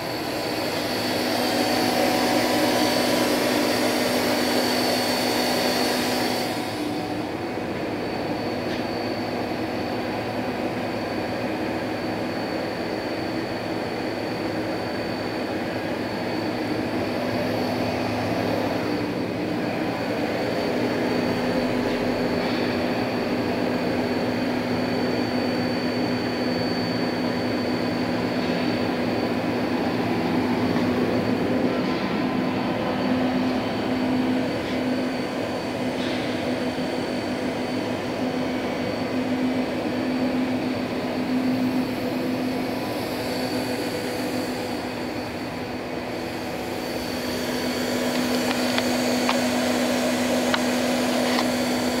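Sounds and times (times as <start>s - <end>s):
machine hum with high whine: 0.0s - 52.0s.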